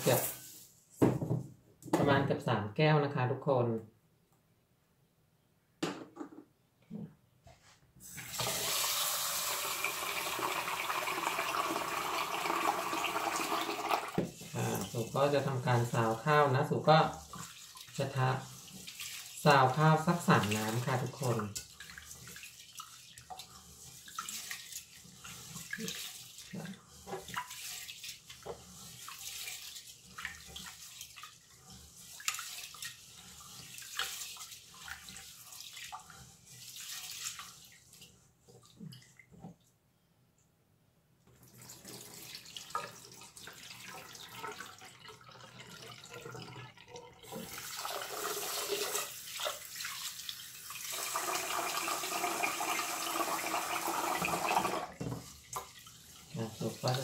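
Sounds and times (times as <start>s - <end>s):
water pouring: 0.0s - 0.6s, 8.0s - 39.6s, 41.3s - 57.0s
rice being washed by hand: 0.0s - 0.8s, 7.5s - 39.7s, 41.3s - 57.0s.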